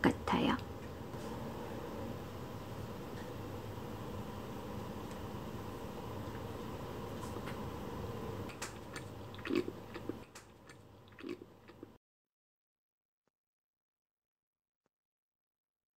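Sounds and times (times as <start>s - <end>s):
chewing mouth sounds: 8.5s - 12.0s.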